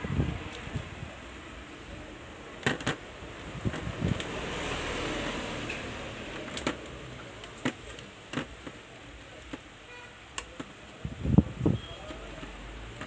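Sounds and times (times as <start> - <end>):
plastic handling knocks and clicks: 2.6 - 3.0, 6.4 - 9.7, 10.4 - 11.0, 12.0 - 13.0.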